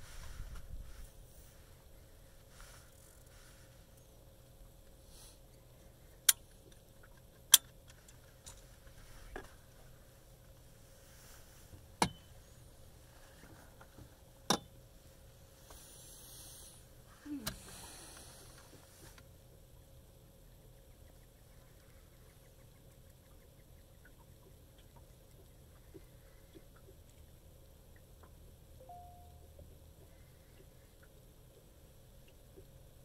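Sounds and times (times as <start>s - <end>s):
soft rustling: 0.0s - 4.2s, 8.0s - 14.2s.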